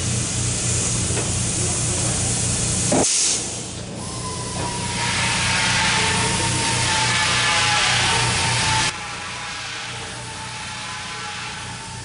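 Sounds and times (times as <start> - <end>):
pneumatic drill air hiss: 0.0 - 12.0.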